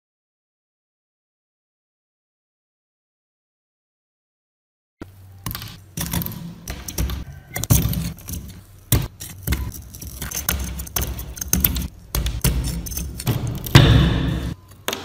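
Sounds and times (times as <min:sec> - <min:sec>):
blade scraping rust off metal: 0:05.4 - 0:14.9.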